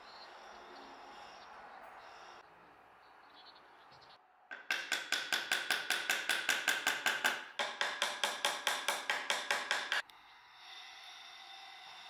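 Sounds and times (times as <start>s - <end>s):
hammer tapping on wooden board: 4.5s - 10.0s.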